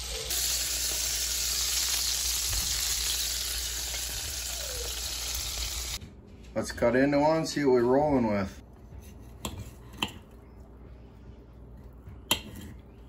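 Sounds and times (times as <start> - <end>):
meat sizzling in a pan: 0.0 - 6.0.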